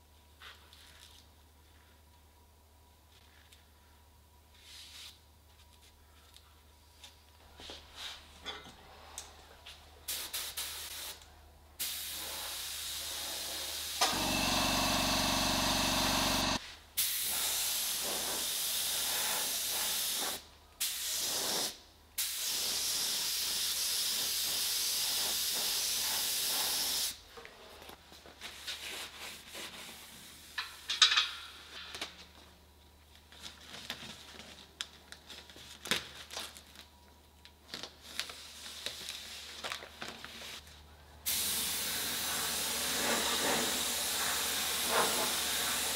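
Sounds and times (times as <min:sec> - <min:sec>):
paint spray gun hissing: 0:11.8 - 0:27.2, 0:41.3 - 0:45.9
plastic sheet crinkling: 0:33.0 - 0:40.7.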